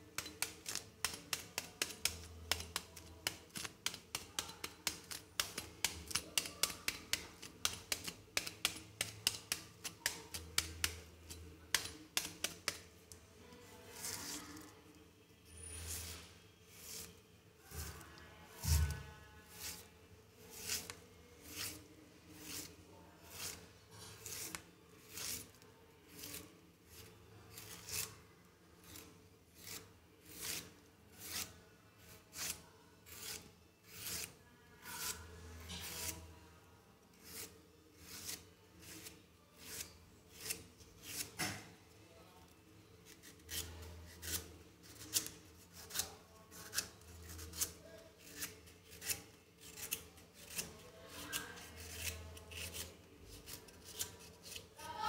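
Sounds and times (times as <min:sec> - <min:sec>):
knife scraping bamboo shoot: 0:00.2 - 0:12.8, 0:20.5 - 0:22.7, 0:23.3 - 0:28.2, 0:28.8 - 0:31.6, 0:32.2 - 0:36.3, 0:37.2 - 0:41.4, 0:43.0 - 0:54.8.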